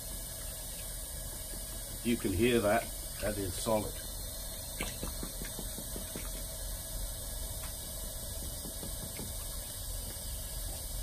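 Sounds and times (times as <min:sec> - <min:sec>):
steady equipment hum: 0:00.0 - 0:11.0
light taps on pipe: 0:04.8 - 0:06.5, 0:08.4 - 0:09.5.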